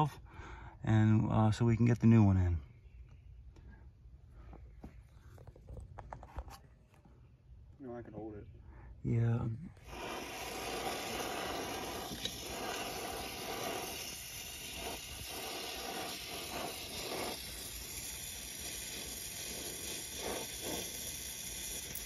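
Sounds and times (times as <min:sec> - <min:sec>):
brazing torch flame hissing: 0:09.7 - 0:22.0.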